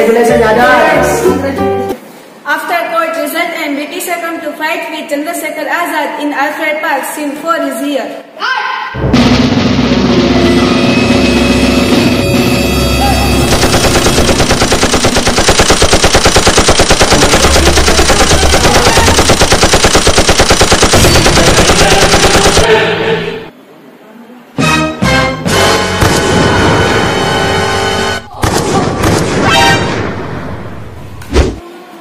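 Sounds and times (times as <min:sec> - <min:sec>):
music: 0:00.0 - 0:02.0, 0:09.0 - 0:13.9, 0:24.6 - 0:28.3
rapid machine-gun fire: 0:13.4 - 0:22.7.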